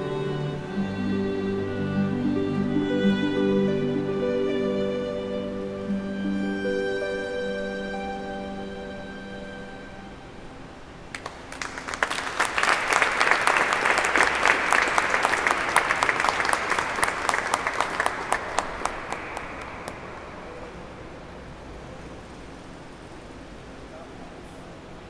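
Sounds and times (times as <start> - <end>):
audience applauding: 11.1 - 21.0.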